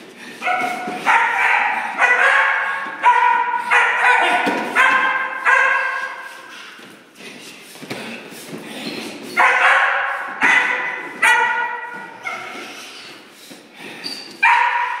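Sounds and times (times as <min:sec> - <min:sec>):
puppy barking high-pitched: 0:00.4 - 0:06.4, 0:09.4 - 0:12.7, 0:14.4 - 0:15.0.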